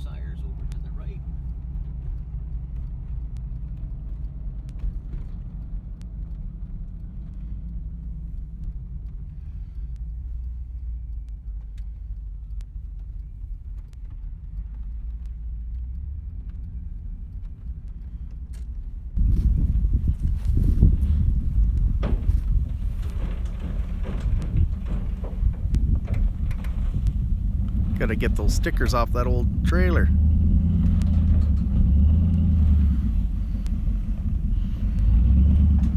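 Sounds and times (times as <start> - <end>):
faint ticks: 0.0 - 35.9
truck engine and road rumble: 0.0 - 35.9
gusty wind noise: 19.2 - 35.9.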